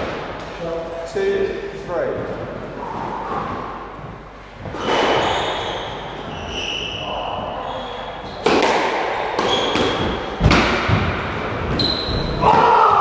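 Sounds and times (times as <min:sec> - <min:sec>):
shoes squeaking on wooden floor: 0:04.1 - 0:08.5, 0:09.4 - 0:10.3, 0:11.6 - 0:12.5
squash ball hits: 0:04.6 - 0:06.6, 0:08.2 - 0:13.0.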